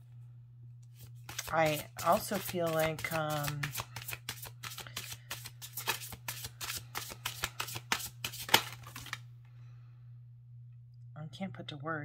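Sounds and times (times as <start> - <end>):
cards being shuffled: 0.9 - 9.2.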